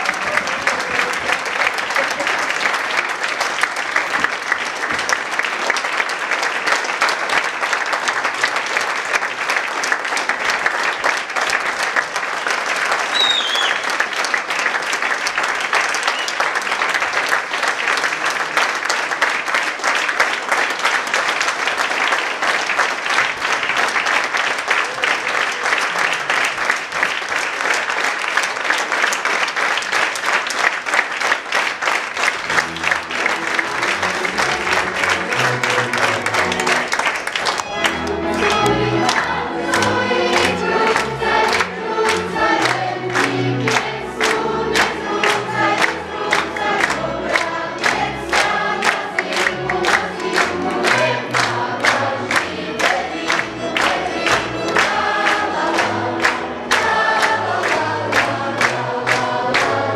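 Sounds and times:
audience applauding: 0:00.0 - 0:59.9.

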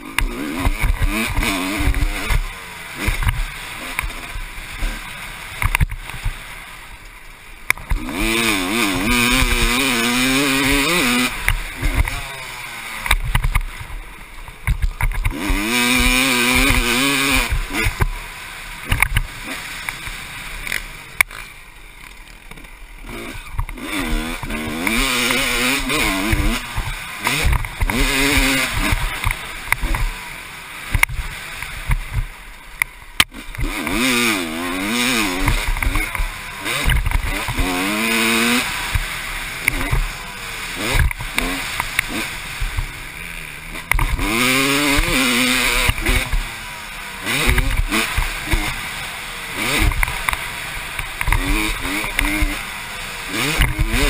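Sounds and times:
dirt bike engine revving: 0:00.0 - 0:54.0
bike knocking over bumps: 0:13.1 - 0:15.7.

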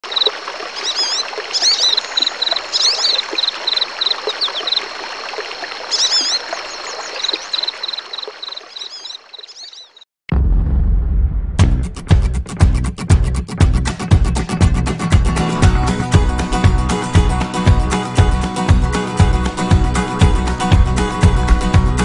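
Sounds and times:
running water: 0:00.0 - 0:10.0
birds singing: 0:00.1 - 0:10.0.

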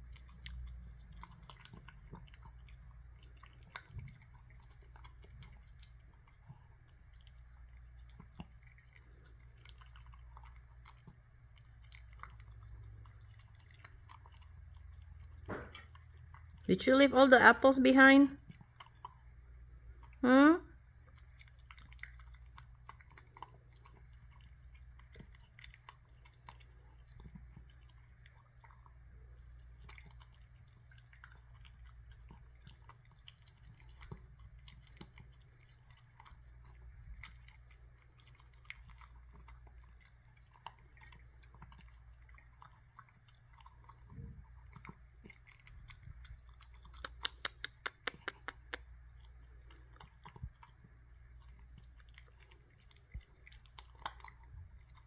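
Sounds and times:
dog chewing apple: 0:00.0 - 0:55.0
sharp clicks: 0:47.1 - 0:48.8.

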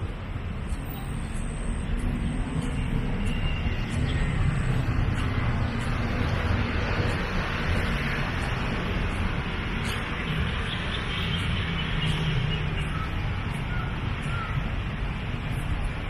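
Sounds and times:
distant street traffic hum: 0:00.0 - 0:16.0
faint bird calls: 0:12.0 - 0:14.8.

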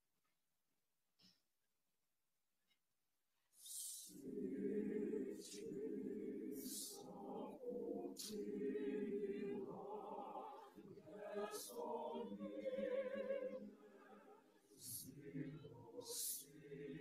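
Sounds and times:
choir singing in parts: 0:03.6 - 0:17.0.

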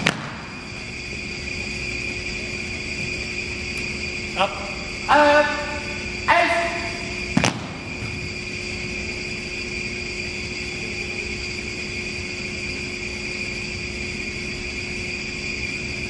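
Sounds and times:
steady electrical hum: 0:00.0 - 0:16.0
person shouting command: 0:04.4 - 0:07.1.

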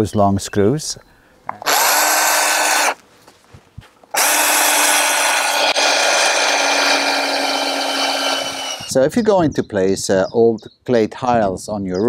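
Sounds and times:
cordless drill driving screws: 0:01.6 - 0:03.0, 0:04.1 - 0:08.9.

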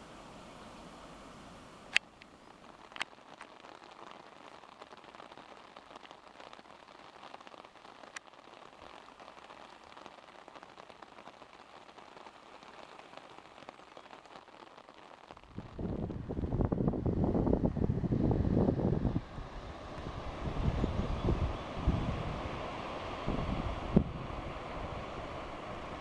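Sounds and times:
faint water hiss: 0:00.0 - 0:26.0
wind buffeting microphone: 0:15.4 - 0:26.0.

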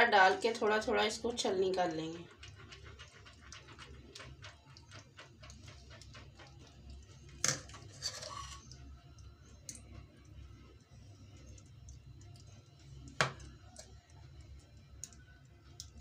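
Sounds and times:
spatula strokes through strainer: 0:07.8 - 0:08.8.

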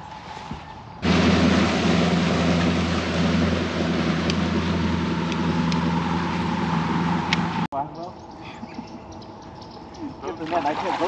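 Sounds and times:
wind: 0:00.0 - 0:11.0
outboard motor drone: 0:01.0 - 0:07.7
rushing water: 0:01.0 - 0:07.7, 0:10.4 - 0:11.0.

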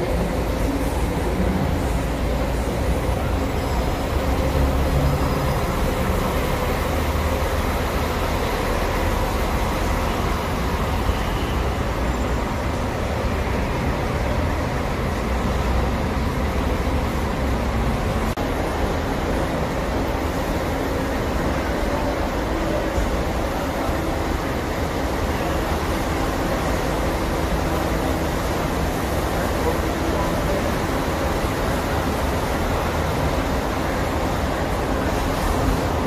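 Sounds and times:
bus engine rumble: 0:00.0 - 0:36.0.

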